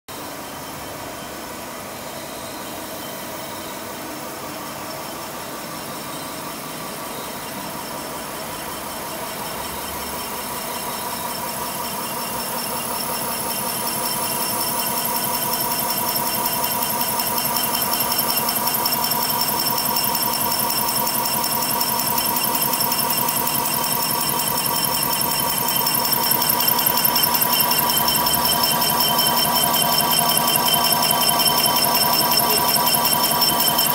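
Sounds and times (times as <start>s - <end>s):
milling machine running: 9.3s - 33.9s
milling cutter chatter: 20.9s - 33.9s.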